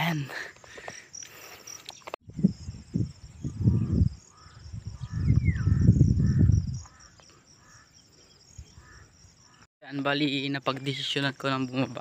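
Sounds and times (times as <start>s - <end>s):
high insect drone: 0.0s - 12.0s
wind buffeting microphone: 2.2s - 7.1s.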